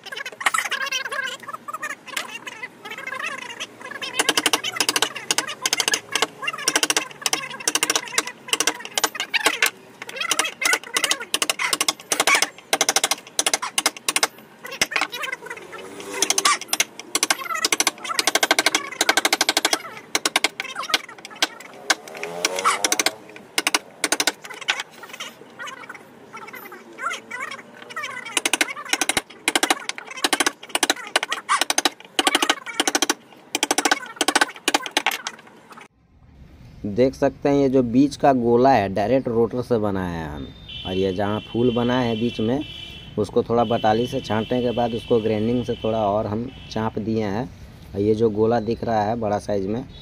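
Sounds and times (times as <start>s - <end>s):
hammer striking wood chisel: 4.1s - 15.1s, 16.0s - 24.8s, 28.3s - 35.4s.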